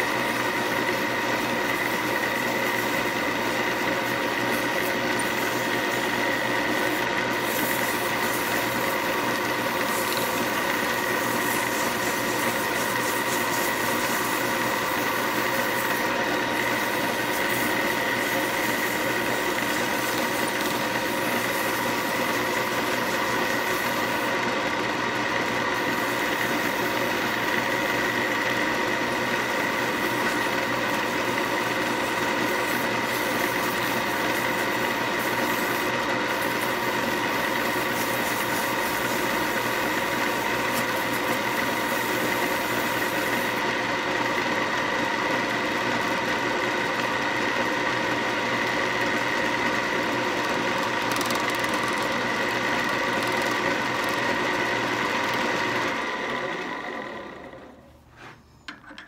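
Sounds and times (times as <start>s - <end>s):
sandpaper sanding wood: 0.0s - 43.8s
lathe motor whining: 0.0s - 59.0s.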